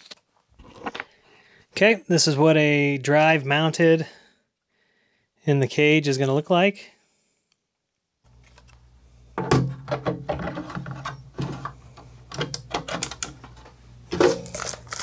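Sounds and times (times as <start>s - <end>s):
low steady hum: 8.3s - 15.0s.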